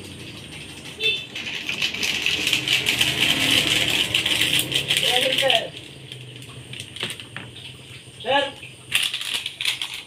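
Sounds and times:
plastic bag crinkling: 0:01.3 - 0:07.5, 0:08.9 - 0:10.0.

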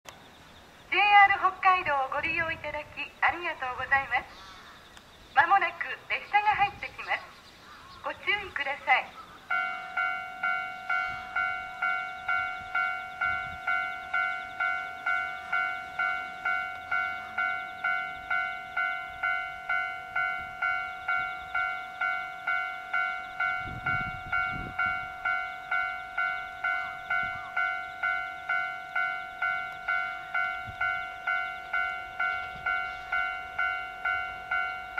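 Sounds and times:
electronic bell-like alarm tone: 0:09.5 - 0:34.9.

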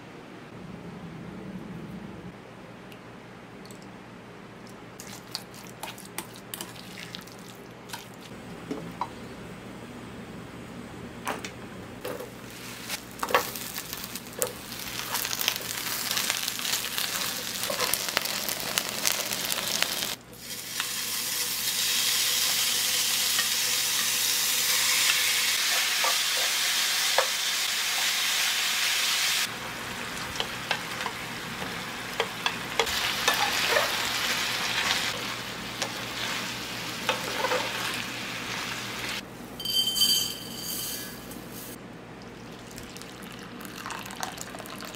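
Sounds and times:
food sizzling in a frying pan: 0:12.4 - 0:39.2.

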